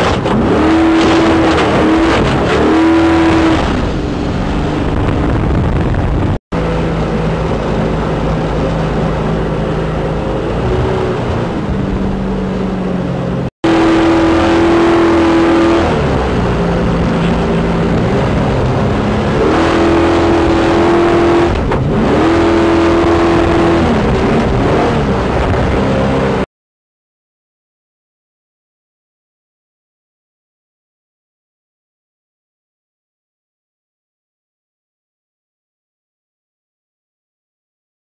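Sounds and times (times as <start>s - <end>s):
jet boat engine running hard: 3.4s - 26.4s
water rushing: 6.6s - 26.4s.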